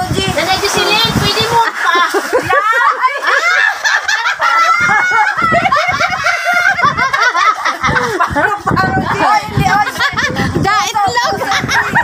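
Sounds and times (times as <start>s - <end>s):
people laughing and shrieking: 1.5s - 12.0s.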